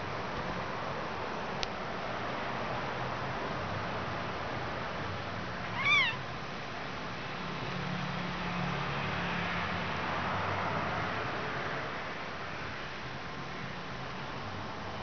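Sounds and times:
steady background hiss: 0.0s - 9.0s
kitten mewing: 5.6s - 6.2s.

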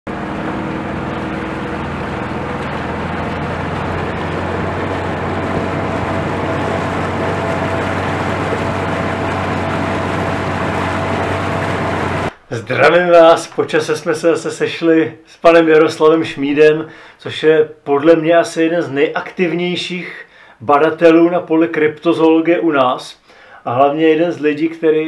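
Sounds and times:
motorboat engine drone: 0.1s - 12.3s
water rushing: 0.1s - 12.3s.

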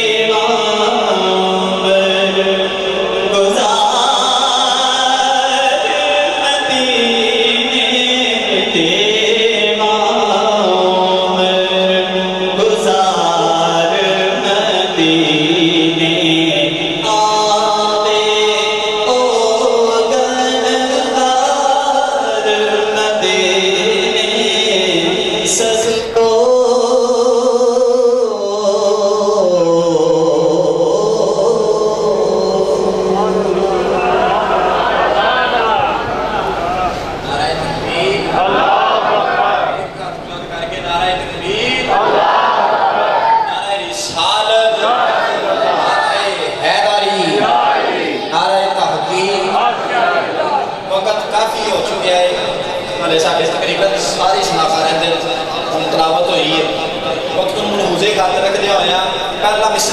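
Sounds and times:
man singing devotional song: 0.0s - 34.2s, 43.5s - 44.8s, 50.9s - 59.9s.

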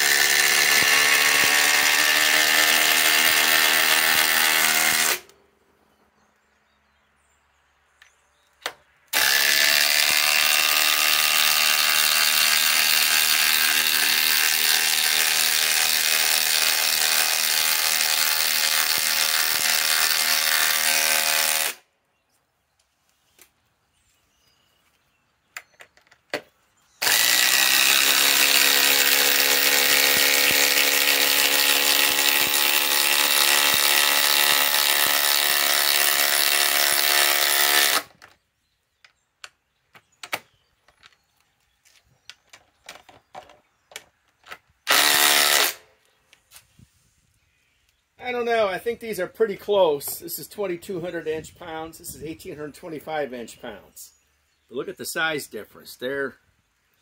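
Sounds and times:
impact driver hammering screws: 0.0s - 5.3s, 8.6s - 21.8s, 25.7s - 38.3s, 44.9s - 45.8s.

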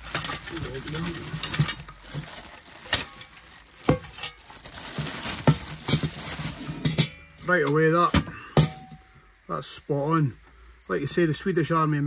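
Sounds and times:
plastic wrapping crinkling: 0.0s - 8.0s
metal pot clinks: 6.8s - 7.4s.

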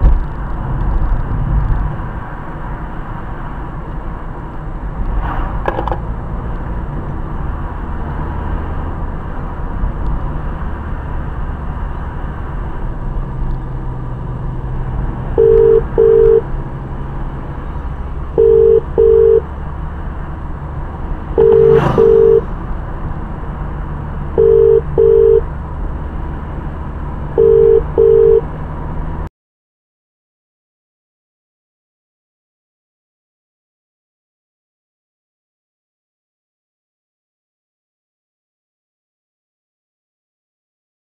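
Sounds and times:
car cabin engine and tyre noise: 0.0s - 29.3s
telephone ringback tone: 15.4s - 16.4s, 18.4s - 19.4s, 21.4s - 22.5s, 24.4s - 25.4s, 27.4s - 28.5s.

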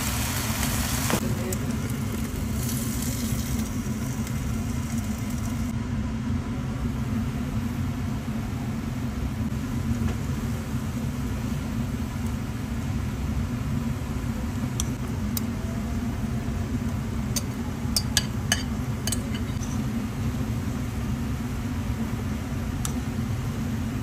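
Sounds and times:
stir-frying in a frying pan: 0.0s - 5.7s
low mechanical rumble: 0.0s - 24.0s.

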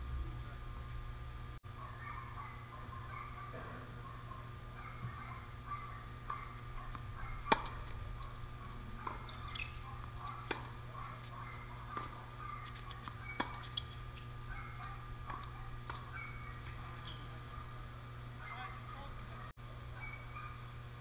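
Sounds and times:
tennis ball hits and bounces: 7.4s - 8.3s, 9.0s - 11.3s, 12.0s - 14.0s.

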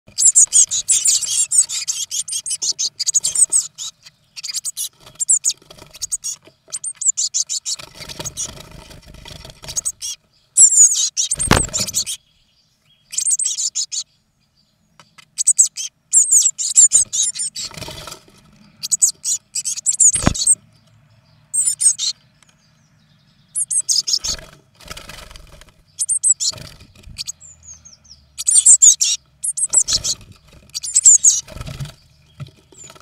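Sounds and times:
nestlings begging calls: 0.1s - 33.0s
loud thump: 11.4s - 11.8s.

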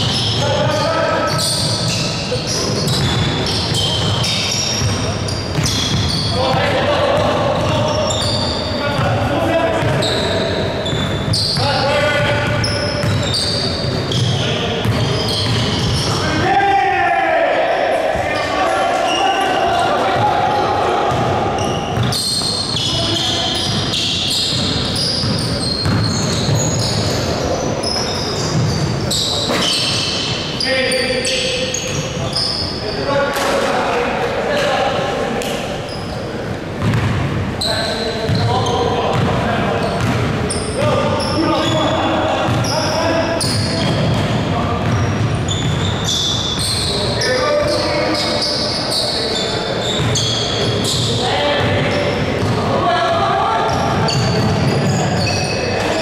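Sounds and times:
sneakers squeaking on floor: 0.0s - 16.5s, 18.2s - 33.8s, 34.5s - 56.0s
players' voices: 0.0s - 56.0s
basketball bouncing: 2.8s - 7.9s, 9.8s - 10.0s, 12.2s - 13.3s, 14.2s - 16.0s, 21.1s - 22.9s, 24.5s - 26.8s, 36.8s - 37.4s, 39.1s - 39.4s, 40.0s - 40.3s, 42.5s - 42.7s, 43.4s - 45.9s, 51.6s - 52.6s.

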